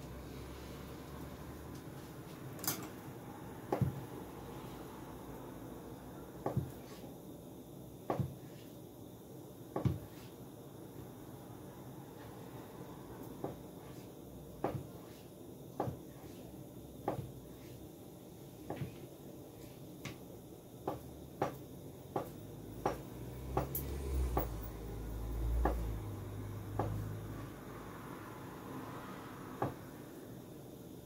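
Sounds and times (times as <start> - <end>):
knife chopping on cutting board: 14.6 - 15.1, 26.7 - 27.0.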